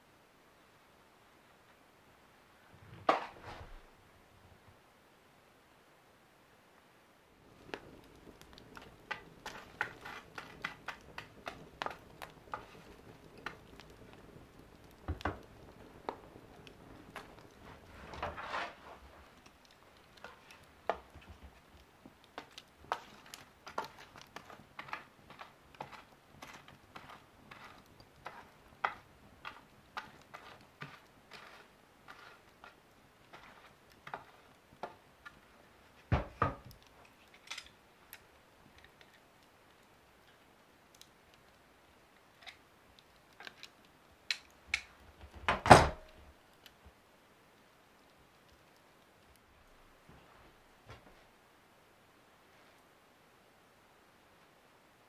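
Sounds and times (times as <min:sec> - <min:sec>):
wood fire crackling: 0:06.7 - 0:55.0
fire hiss: 0:07.4 - 0:34.8.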